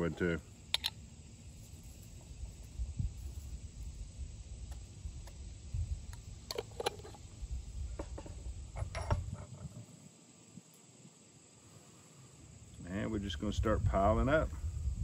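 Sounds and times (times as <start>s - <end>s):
objects set down on wooden bench: 7.9s - 9.8s.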